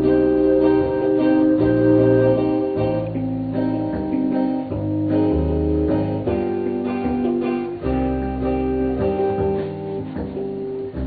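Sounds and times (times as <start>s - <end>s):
acoustic guitar chords: 0.0s - 11.0s.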